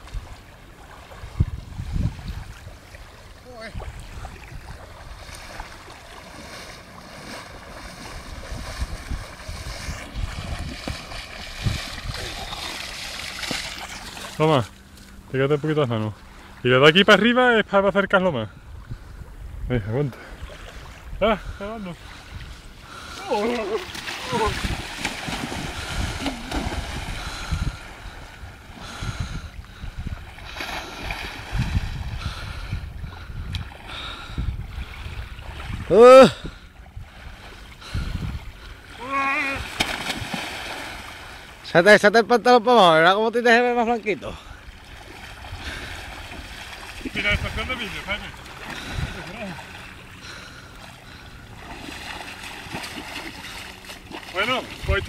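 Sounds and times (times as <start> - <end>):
wind buffeting microphone: 0.0 - 14.2, 18.1 - 41.5, 44.6 - 50.4, 51.0 - 55.0
water splashing around legs: 2.2 - 15.2, 22.9 - 29.0, 39.0 - 41.6, 44.7 - 55.0.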